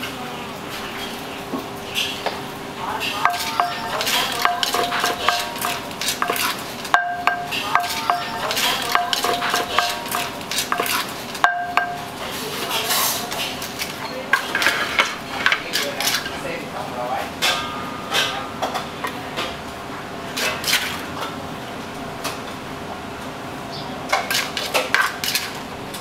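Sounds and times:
metal utensils clinking on cookware: 3.0s - 16.5s.

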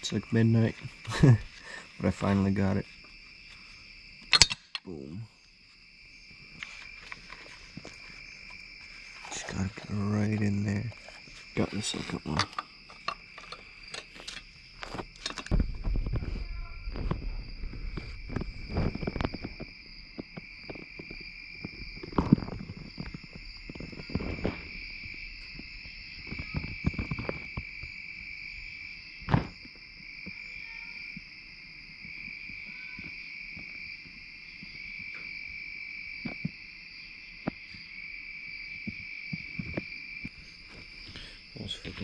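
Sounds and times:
crickets chirping: 0.0s - 42.0s
tools and metal parts knocking: 4.3s - 4.9s, 12.2s - 14.4s, 15.2s - 15.5s.

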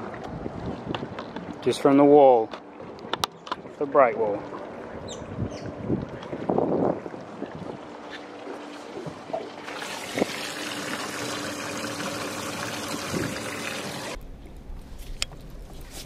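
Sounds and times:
water pouring and bubbling: 4.3s - 15.8s.

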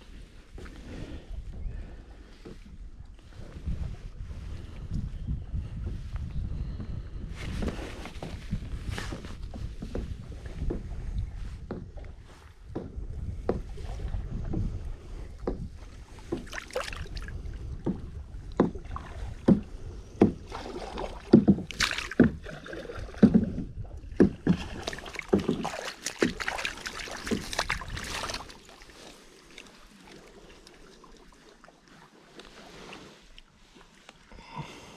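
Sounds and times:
water splashes: 16.1s - 34.4s.

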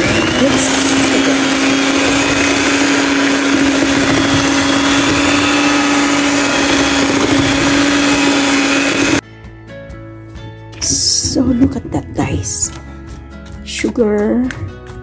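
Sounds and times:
electric hand mixer whisking batter: 0.0s - 9.2s.

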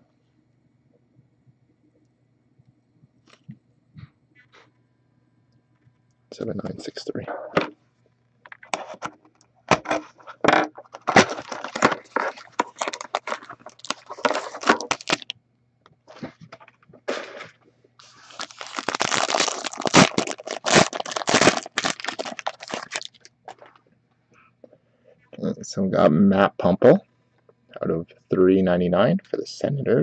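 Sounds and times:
foil pack crinkling: 10.9s - 15.3s, 17.1s - 23.8s.

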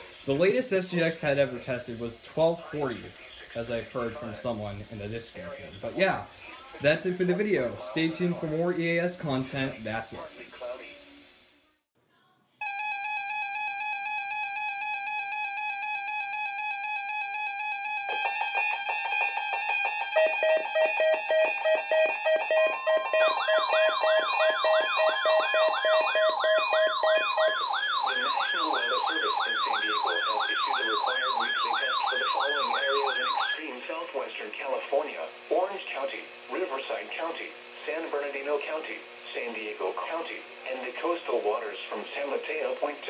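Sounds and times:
pulsing beeps: 12.6s - 33.6s
warbling siren sweep: 12.6s - 33.6s
steady alarm tone: 12.6s - 38.5s.

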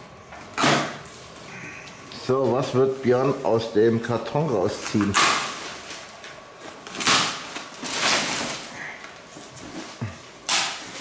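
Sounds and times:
newspaper rustling and crackling: 2.3s - 11.0s.

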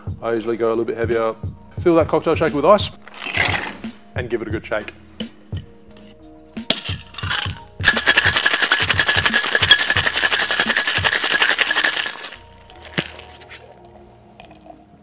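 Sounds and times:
background music with steady beat: 0.0s - 15.0s
ice clinking: 6.7s - 13.7s
ice rattling in cocktail shaker: 6.7s - 13.7s.

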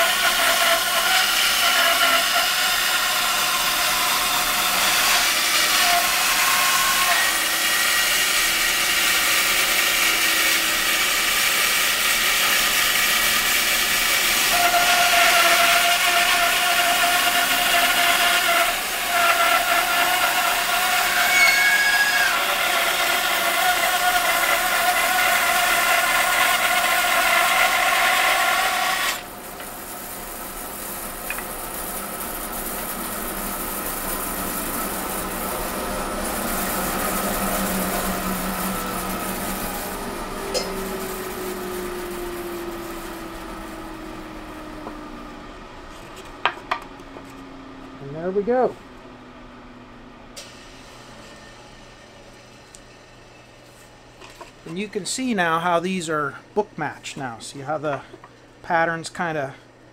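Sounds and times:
bandsaw cutting wood: 0.0s - 44.2s
bandsaw running idle: 0.0s - 45.0s.

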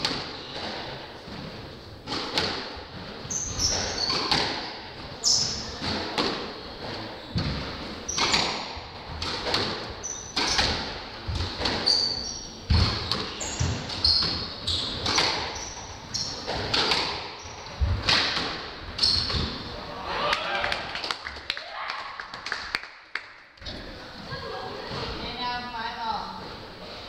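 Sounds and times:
squash ball hitting rackets and walls: 0.0s - 19.8s
shoes squeaking on wooden floor: 3.0s - 18.0s, 19.0s - 19.7s.

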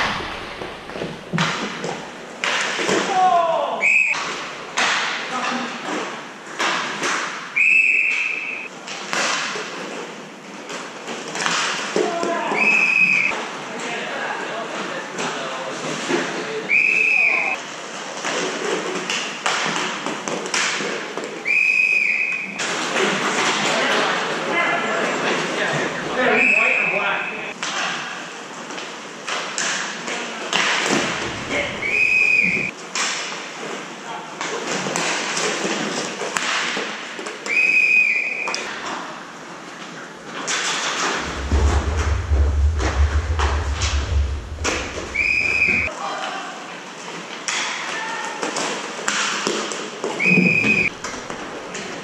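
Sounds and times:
hockey sticks and puck clacking: 8.9s - 10.1s.

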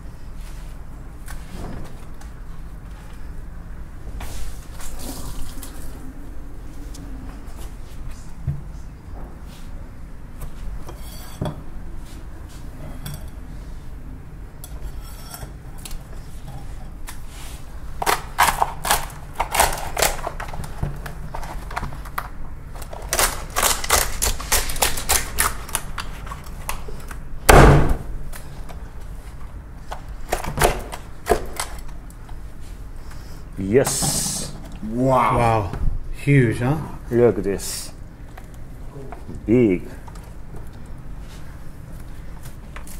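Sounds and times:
knife cracking lobster shell: 18.0s - 20.4s.

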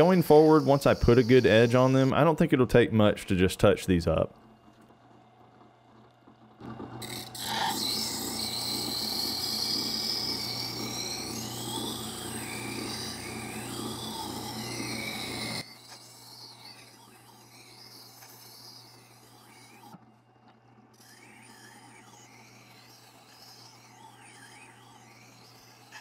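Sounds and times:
faint wavering squeal: 0.0s - 2.4s, 7.0s - 20.0s, 21.0s - 26.0s
grinding wheel motor hum: 0.0s - 26.0s.

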